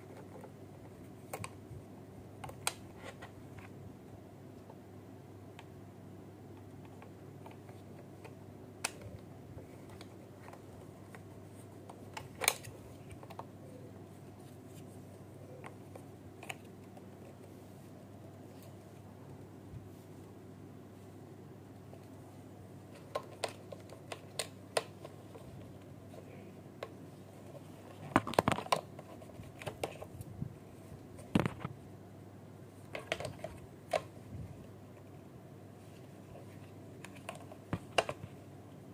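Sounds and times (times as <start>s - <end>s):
low steady hum: 0.0s - 38.9s.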